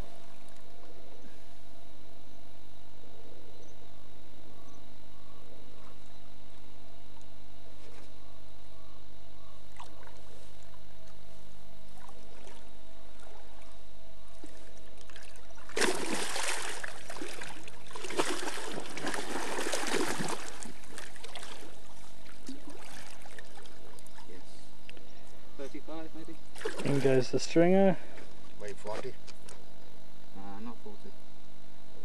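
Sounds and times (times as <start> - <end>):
steady low hum: 0.0 - 32.0
water splashing: 11.9 - 24.5, 26.5 - 27.2.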